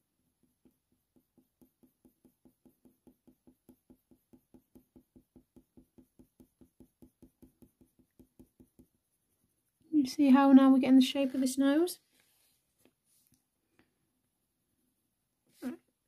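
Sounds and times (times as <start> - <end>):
pencil ticking on paper: 0.3 - 9.8.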